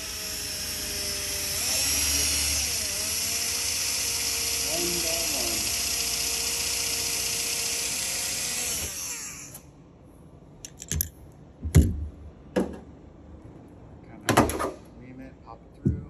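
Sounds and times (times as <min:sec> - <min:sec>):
cordless drill drilling metal: 0:00.0 - 0:09.7.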